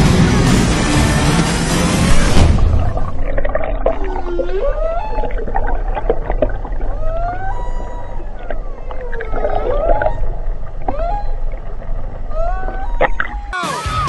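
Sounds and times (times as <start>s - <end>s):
low underwater rumble: 1.7s - 13.6s
whale song moans and whoops: 3.6s - 14.0s.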